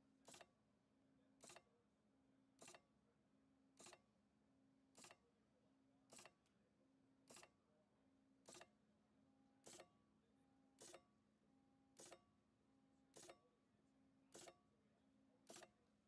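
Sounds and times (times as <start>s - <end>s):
machine mechanical strokes: 0.2s - 0.5s, 1.4s - 1.6s, 2.6s - 2.8s, 3.8s - 4.0s, 5.0s - 5.2s, 6.1s - 6.4s, 7.3s - 7.5s, 8.5s - 8.7s, 9.6s - 9.9s, 10.8s - 11.0s, 12.0s - 12.2s, 13.1s - 13.4s, 14.3s - 14.6s, 15.4s - 15.8s.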